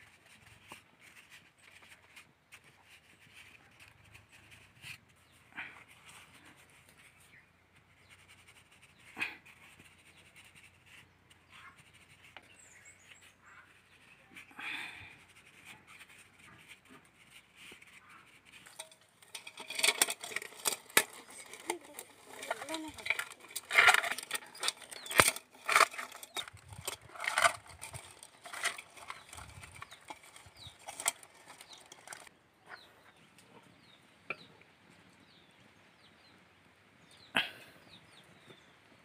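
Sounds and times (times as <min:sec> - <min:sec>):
dry twigs cracking and snapping: 0:18.7 - 0:32.3.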